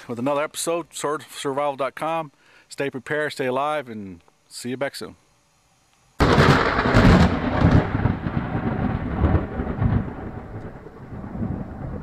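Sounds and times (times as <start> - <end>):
thunder rumbling: 6.2 - 12.0.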